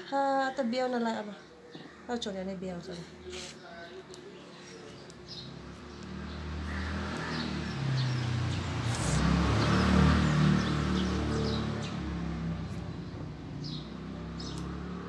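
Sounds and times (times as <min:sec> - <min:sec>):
vehicle engine approaching: 0:05.2 - 0:15.0.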